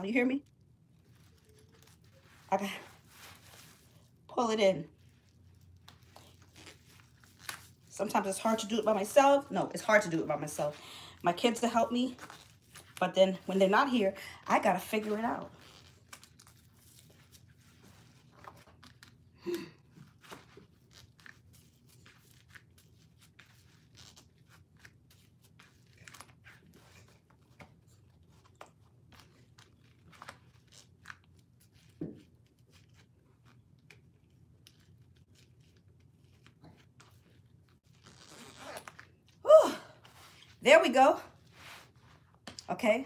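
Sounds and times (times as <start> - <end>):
waist trainer clicking and rustling: 20.0 - 24.9, 25.5 - 39.1.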